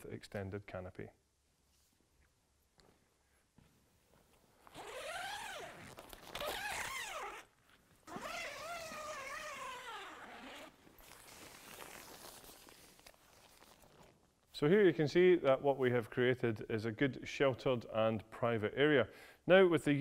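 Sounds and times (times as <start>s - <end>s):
fabric rustling: 3.6s - 14.5s
tent zip unzipping: 4.7s - 14.2s.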